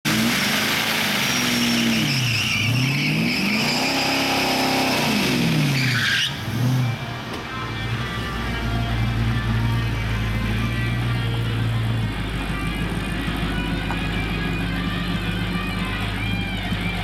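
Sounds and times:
car engine revving: 0.1 - 17.0
tyres spinning and squealing: 1.3 - 7.1.

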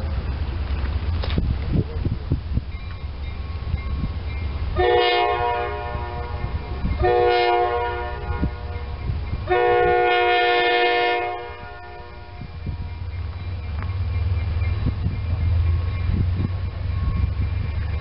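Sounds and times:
locomotive air horn blasts: 4.8 - 12.9.

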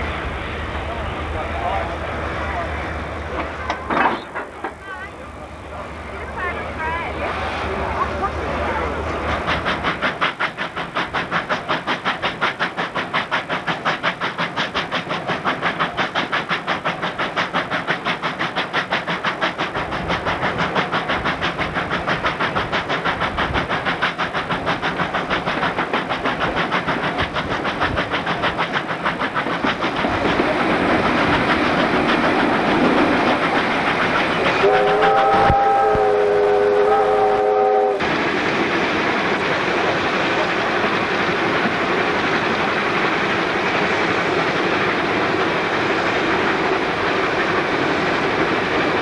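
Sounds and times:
steam locomotive exhaust beating: 0.0 - 49.0
steam whistle: 34.6 - 38.1.

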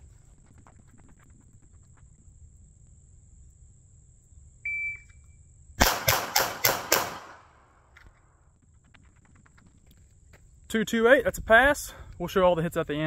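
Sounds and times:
pistol shots: 5.8 - 7.6.

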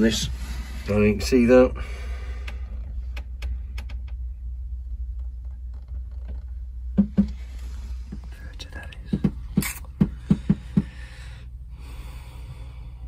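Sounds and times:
steady low hum: 0.0 - 13.0
dull knocks: 6.9 - 7.4, 9.1 - 11.1.

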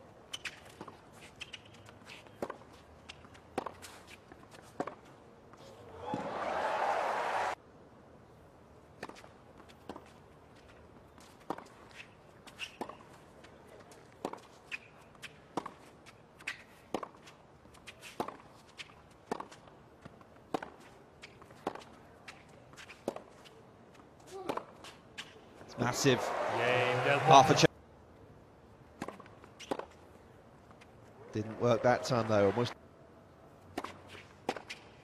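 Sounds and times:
tennis ball bouncing: 0.3 - 5.1, 9.0 - 10.1, 11.2 - 13.1, 14.0 - 23.5, 24.4 - 25.3, 29.0 - 30.0, 33.7 - 35.0
crowd noise: 5.6 - 7.6, 25.7 - 27.7, 31.2 - 32.8
tennis racket hitting ball: 20.5 - 20.8.

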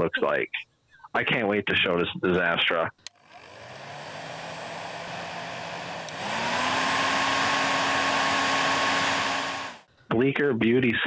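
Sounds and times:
hair dryer running: 3.2 - 9.9.

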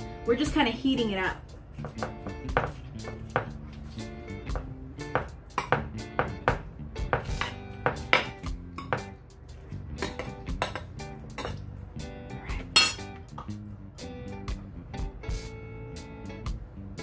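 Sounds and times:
background music: 0.0 - 17.0
utensils and dishes clinking: 9.9 - 11.7, 12.6 - 13.6.

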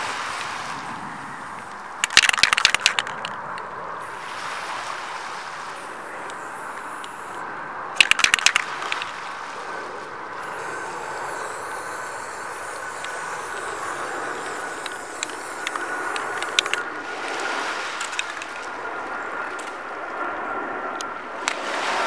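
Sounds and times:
steady background rush: 0.0 - 22.0
rocks clicking and knocking: 2.0 - 3.6, 8.0 - 9.2
spray paint can hissing: 10.4 - 16.8.

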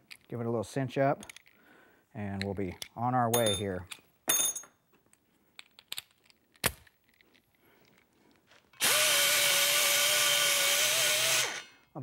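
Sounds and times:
tool handling clicks and knocks: 0.0 - 0.4, 1.2 - 1.6, 2.3 - 8.8
pneumatic die grinder whine: 8.8 - 11.8.

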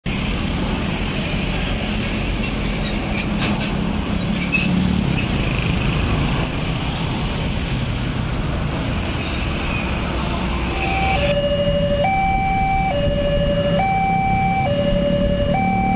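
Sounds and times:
cars and trucks driving by: 0.0 - 15.9
motor scooters passing: 4.7 - 7.1.

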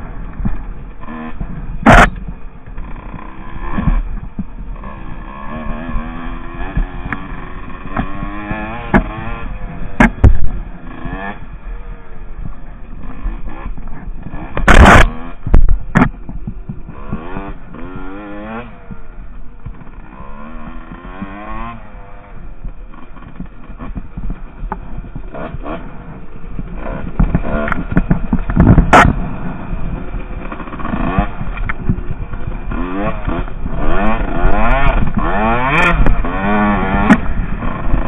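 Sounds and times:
dirt bike engine revving: 0.0 - 38.0.

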